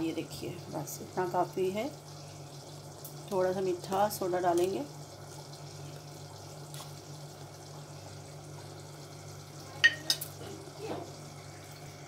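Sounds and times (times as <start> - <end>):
low hum with faint hiss: 0.0 - 12.0
kitchen utensils clinking: 9.8 - 11.1.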